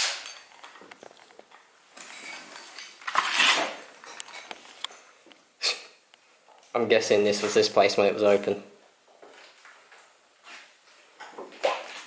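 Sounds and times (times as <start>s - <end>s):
knocks and scrapes on gritty floor: 0.0s - 4.9s.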